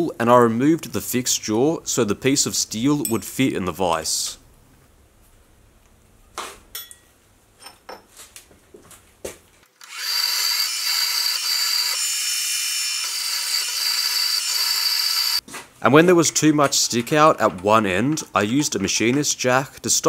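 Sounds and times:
drill boring through steel: 9.8s - 15.4s
mill spindle whining: 9.8s - 15.4s.

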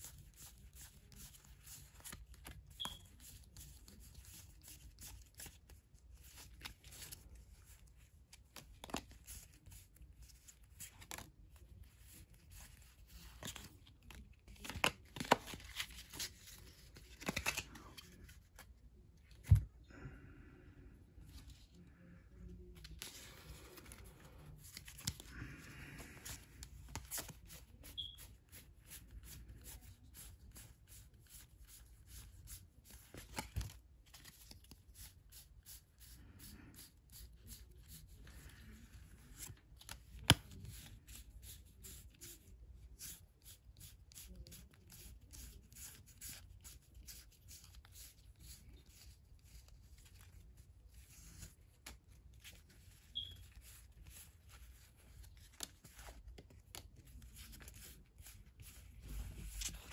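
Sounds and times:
cards flipped in hand: 8.3s - 11.3s, 11.9s - 18.7s, 22.8s - 30.3s, 31.7s - 35.8s, 39.2s - 42.0s, 45.4s - 59.9s.

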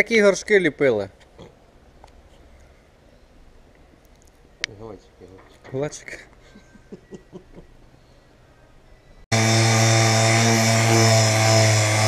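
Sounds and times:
orbital sander on plastic: 9.3s - 12.0s.

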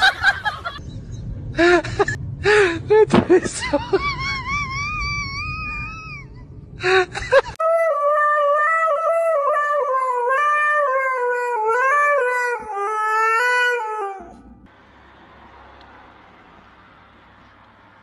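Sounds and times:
short wavering animal cries: 7.7s - 14.4s
husky howling: 7.7s - 14.6s.

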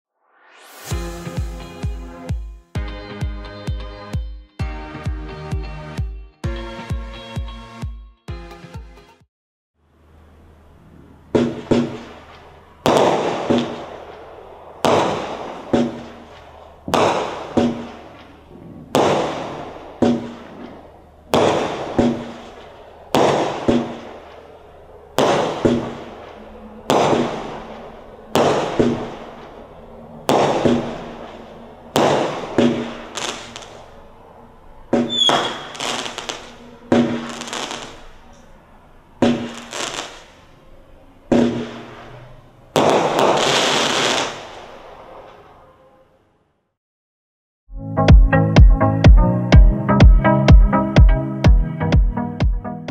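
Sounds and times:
fireworks bangs: 10.9s - 38.4s, 39.2s - 40.6s, 41.3s - 45.7s.

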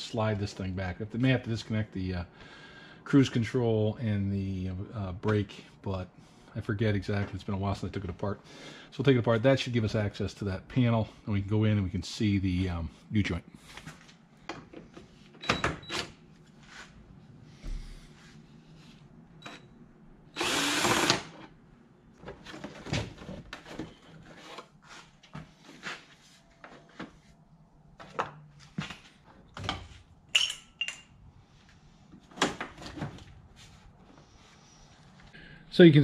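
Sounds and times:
cordless drill running: 20.3s - 21.4s
metal parts and tools clanking: 29.6s - 31.2s.

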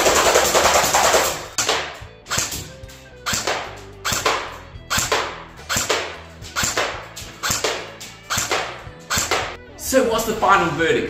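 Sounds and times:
faint background music: 0.0s - 11.0s
airsoft rifle firing pops: 3.3s - 9.6s.

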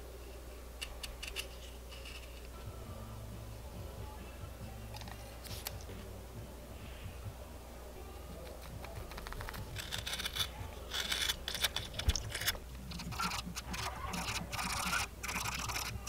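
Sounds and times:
knife scraping wood: 8.5s - 16.0s.

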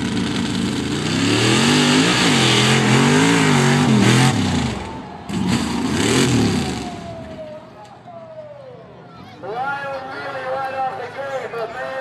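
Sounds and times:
truck engine revving hard: 0.0s - 7.1s.

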